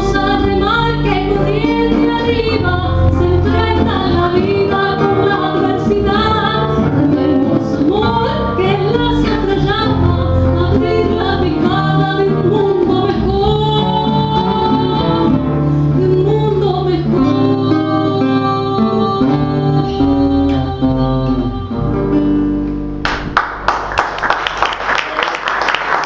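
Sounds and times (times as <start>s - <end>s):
woman singing: 0.0s - 22.3s
acoustic guitars: 0.0s - 24.5s
audience applause: 23.0s - 26.0s.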